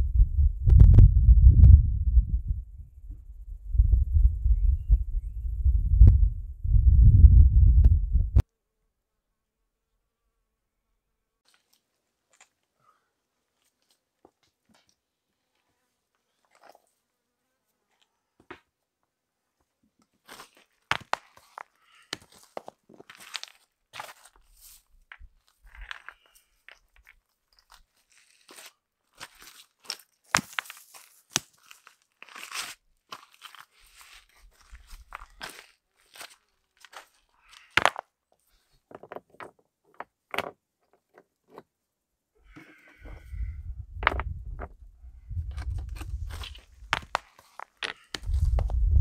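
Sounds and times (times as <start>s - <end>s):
footsteps in dry undergrowth: 20.2s - 26.6s, 27.5s - 37.8s, 45.5s - 48.8s
stones knocking and crunching: 20.3s - 24.4s, 25.1s - 27.8s, 28.5s - 33.6s, 34.6s - 38.1s, 38.9s - 41.6s, 42.6s - 49.0s.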